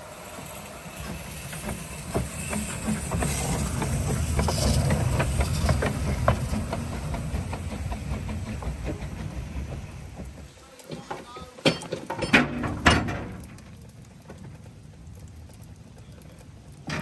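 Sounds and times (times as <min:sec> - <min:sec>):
steam locomotive rumbling past: 0:00.0 - 0:11.5
steam hissing: 0:00.0 - 0:12.1
wheels clanking and knocking: 0:00.0 - 0:17.0.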